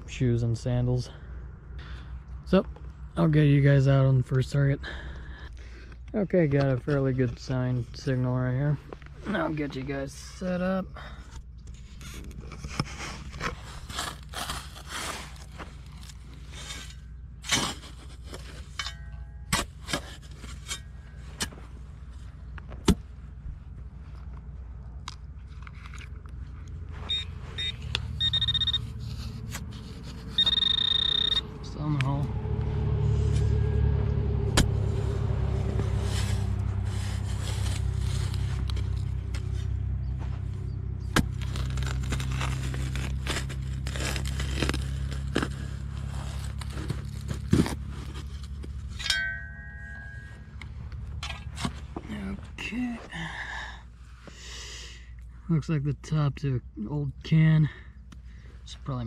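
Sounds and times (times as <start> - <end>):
low motor hum: 11.0 - 54.3
shovel scraping stony soil: 11.7 - 23.1, 26.8 - 31.4, 34.5 - 53.0
falling clods of soil: 34.8 - 48.8.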